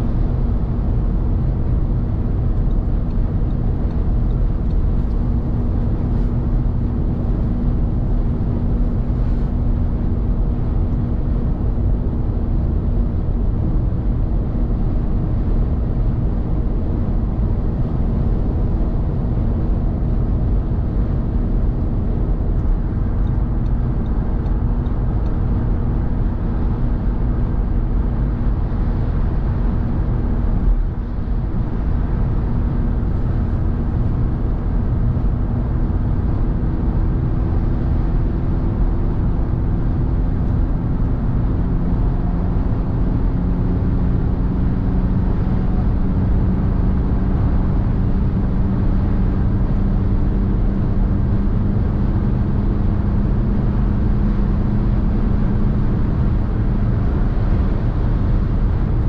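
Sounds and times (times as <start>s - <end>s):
car engine drone: 0.0s - 59.0s.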